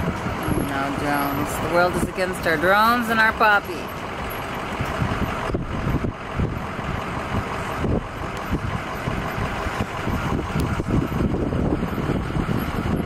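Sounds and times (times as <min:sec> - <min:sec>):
vehicle engine and tyre rumble: 0:00.0 - 0:13.0.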